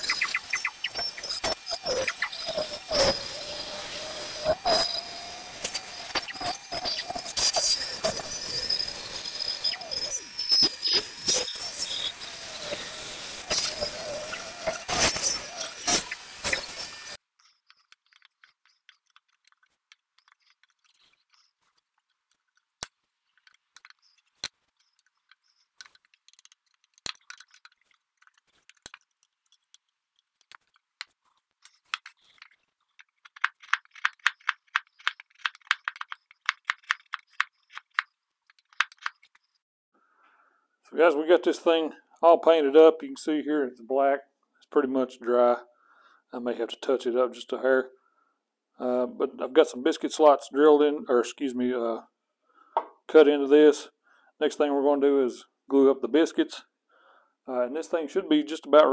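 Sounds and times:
bandsaw motor hum: 0.0s - 17.2s
chisel scraping clicks: 13.4s - 39.6s.

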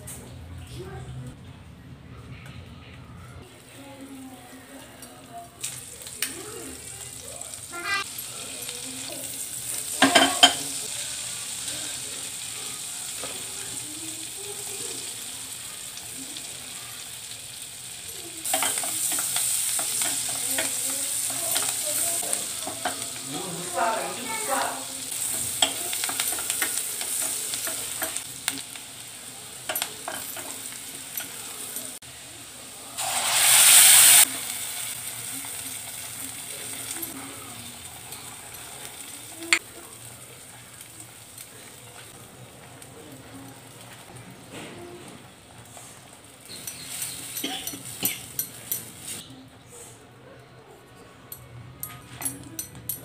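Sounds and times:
hot oil sizzling: 3.8s - 49.3s
loud hiss: 33.0s - 34.9s.

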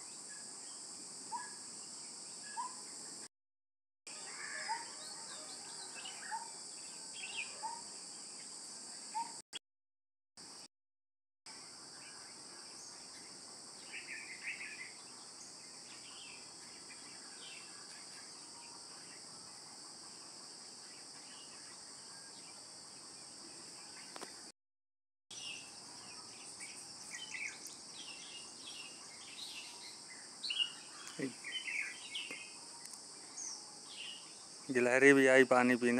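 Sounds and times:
bird chirps: 0.0s - 3.0s, 4.1s - 9.4s, 12.0s - 19.3s, 25.3s - 34.5s
high-pitched insect chorus: 4.1s - 9.3s, 11.5s - 24.5s, 25.3s - 35.9s.

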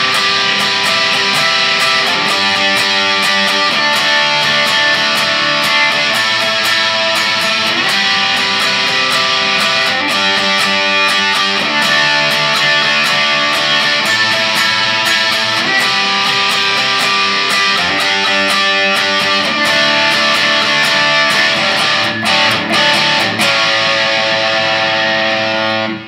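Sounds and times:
electric guitar strumming chords: 0.0s - 26.0s.

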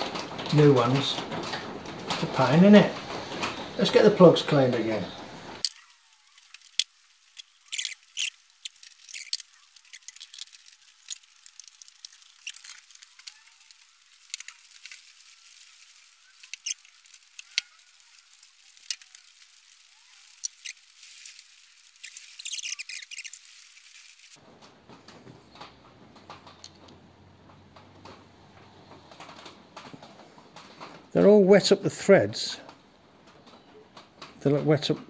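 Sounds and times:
faint clicks and scrapes of hand work: 5.6s - 31.1s.

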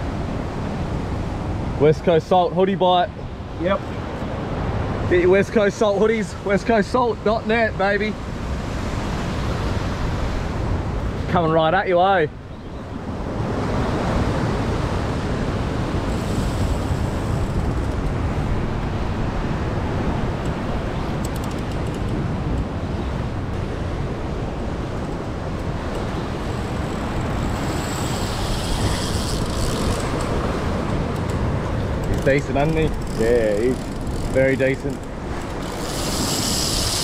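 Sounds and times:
wind buffeting microphone: 3.1s - 37.0s
surf washing against rock: 24.6s - 37.0s.

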